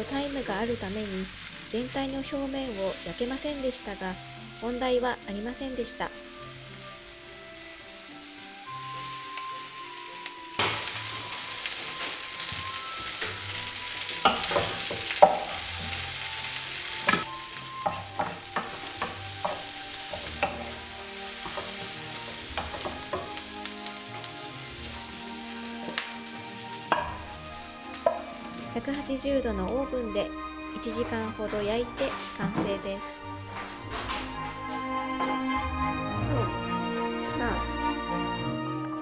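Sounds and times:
vegetables sizzling in frying pan: 0.0s - 35.4s
utensil scraping against pan: 10.6s - 26.1s, 31.0s - 32.8s.

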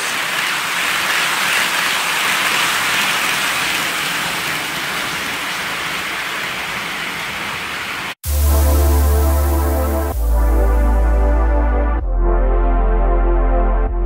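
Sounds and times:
model train wheels rolling: 0.0s - 8.1s.

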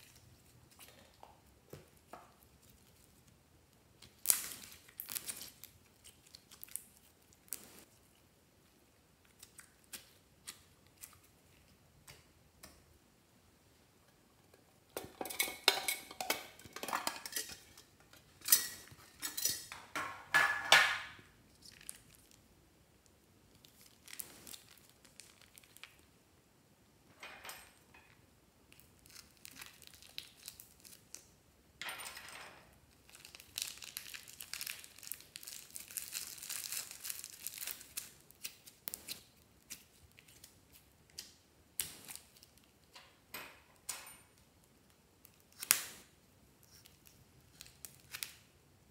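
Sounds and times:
plastic bag crinkling: 23.5s - 26.1s, 28.7s - 31.2s, 32.9s - 40.6s.

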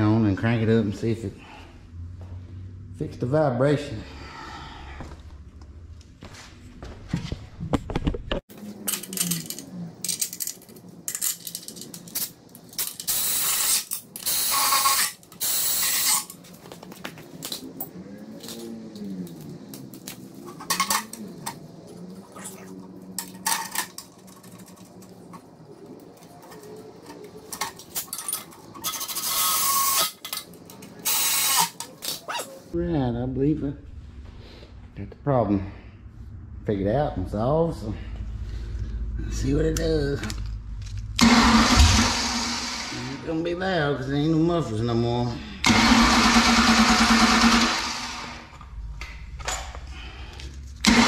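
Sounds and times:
ratchet clicking: 9.0s - 16.4s, 31.0s - 31.8s
metal tools clanking: 26.4s - 30.9s.

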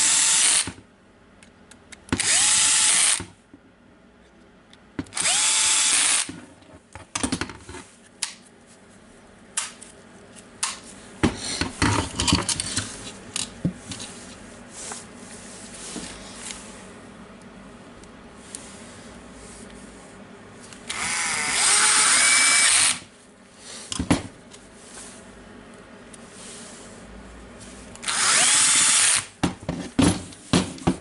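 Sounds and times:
cordless drill driving screws: 0.0s - 0.7s, 2.2s - 3.2s, 5.1s - 6.3s, 20.9s - 23.1s, 28.0s - 29.3s.

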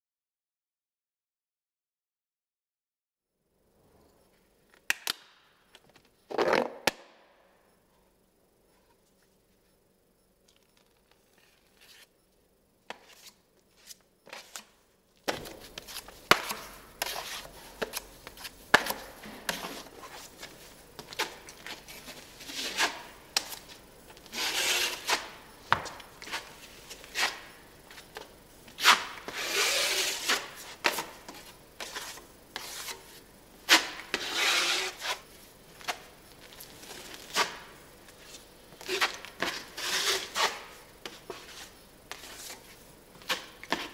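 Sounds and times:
blade scraping filler on wall: 24.3s - 25.3s, 28.8s - 30.5s, 33.7s - 35.2s, 38.9s - 40.6s.

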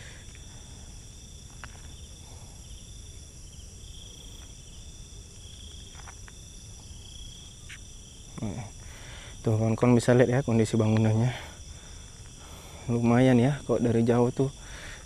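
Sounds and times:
crickets chirring: 0.0s - 15.0s
pulsing insect trill: 0.0s - 15.0s.

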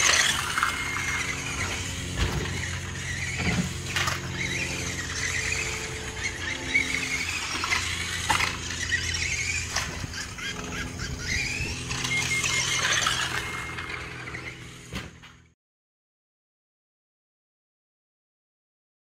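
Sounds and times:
sharp knocks of buggy on bumps: 0.0s - 14.1s
electric toy car motor whining: 0.0s - 15.5s.

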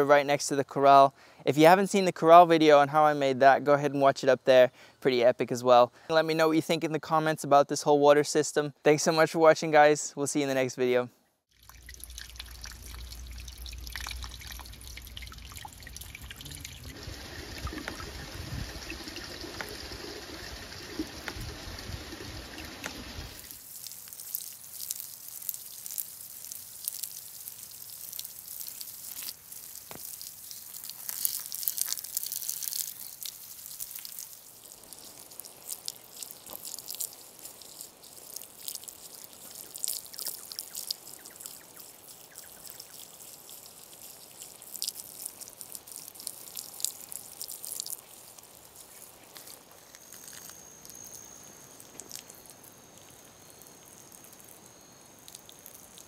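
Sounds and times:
water from hose spattering: 11.5s - 50.5s, 51.8s - 53.1s.

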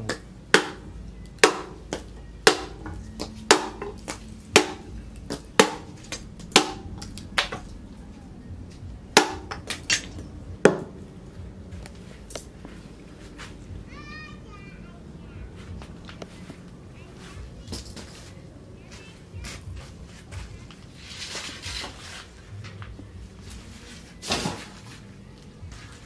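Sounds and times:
billhook chopping wood: 0.0s - 7.6s, 9.2s - 10.9s.

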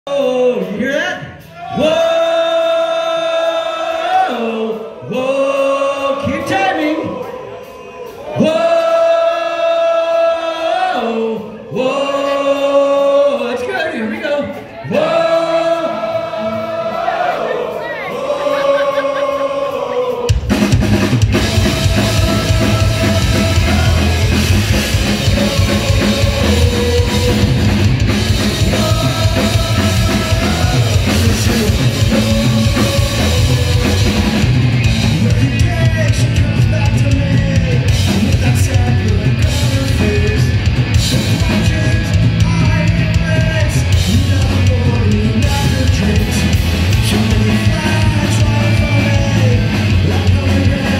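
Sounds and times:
punk rock band playing: 0.1s - 50.9s
person singing: 14.8s - 50.9s.

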